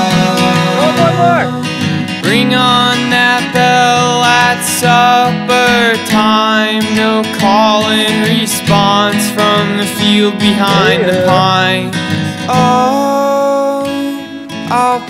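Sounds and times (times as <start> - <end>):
acoustic guitar: 0.0 - 15.0
person singing: 0.0 - 15.0.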